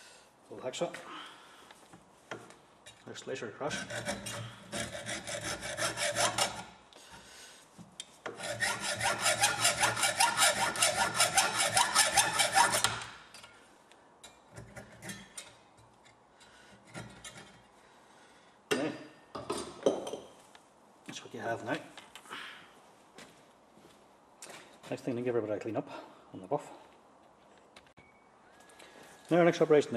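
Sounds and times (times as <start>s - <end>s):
hacksaw rasping strokes: 3.7s - 6.8s, 8.3s - 13.2s.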